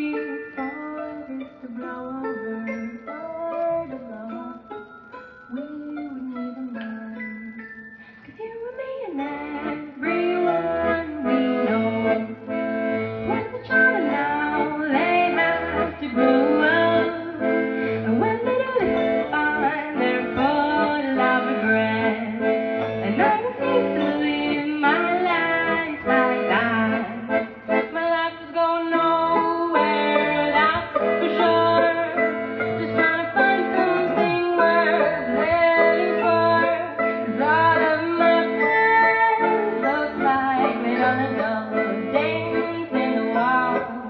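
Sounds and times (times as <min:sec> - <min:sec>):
accordion: 0:00.0 - 0:08.4, 0:09.1 - 0:44.0
violin: 0:09.1 - 0:44.0
live band playing a waltz: 0:09.3 - 0:28.1, 0:28.7 - 0:44.0.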